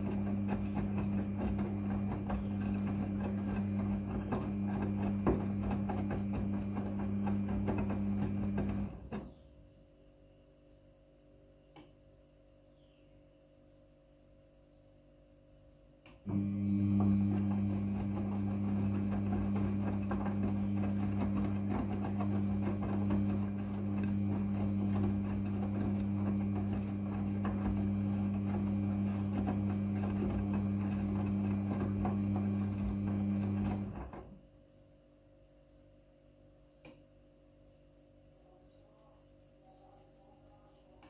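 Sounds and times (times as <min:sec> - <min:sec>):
water sloshing in drum: 0:00.0 - 0:09.2, 0:16.8 - 0:34.1
washing machine motor hum: 0:00.0 - 0:09.4, 0:16.2 - 0:34.5.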